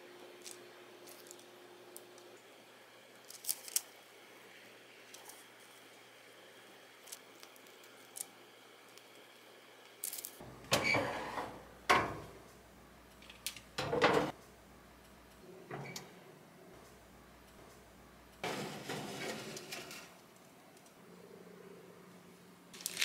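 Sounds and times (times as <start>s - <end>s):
oven door clunking: 13.8s - 14.3s
metal baking tray clattering: 18.4s - 20.2s.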